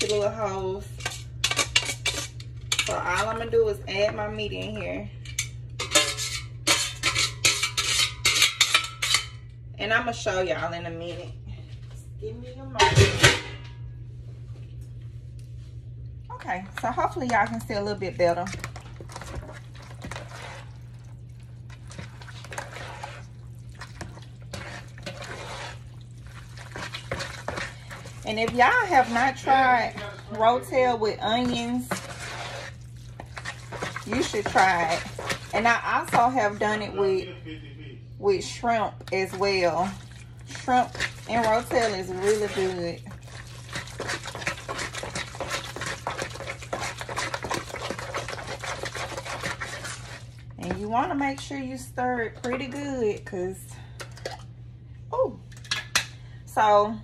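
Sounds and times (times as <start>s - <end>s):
spoon stirring thick wet dip: 0.0s - 9.4s, 16.4s - 37.2s, 38.3s - 53.3s.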